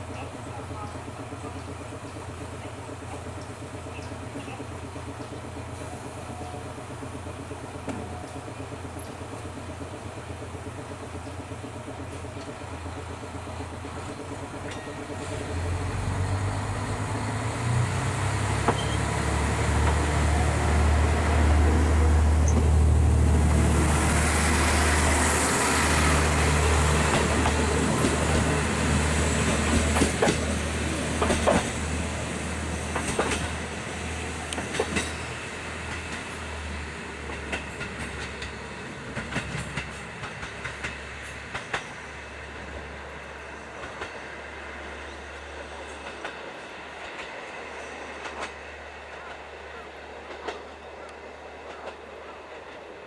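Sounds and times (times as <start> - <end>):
wheels clacking over rail joints: 21.3 - 32.0, 32.8 - 33.7, 34.5 - 36.5, 37.2 - 44.2.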